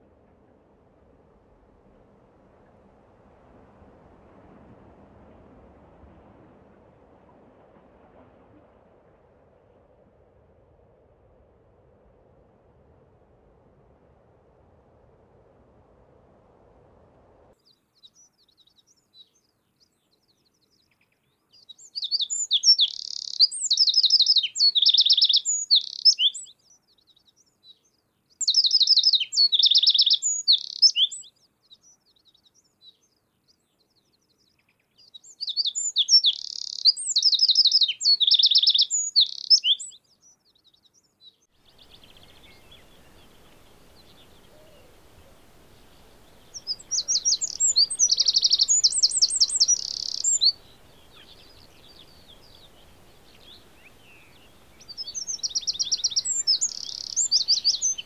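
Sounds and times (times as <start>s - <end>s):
faint background hiss: 0.0s - 58.0s
wren singing trills: 17.6s - 58.0s.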